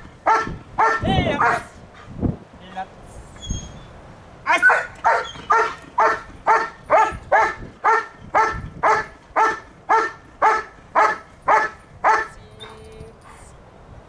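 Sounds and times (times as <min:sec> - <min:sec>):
dog barking: 0:00.2 - 0:01.7, 0:04.5 - 0:12.8.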